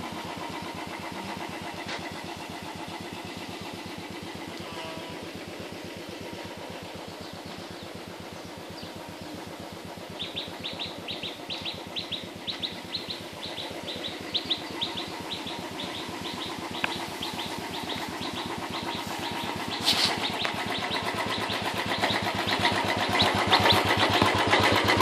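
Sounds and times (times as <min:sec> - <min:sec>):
small engine chugging: 0:00.0 - 0:25.0
bird chirping: 0:06.9 - 0:09.4, 0:10.1 - 0:24.2.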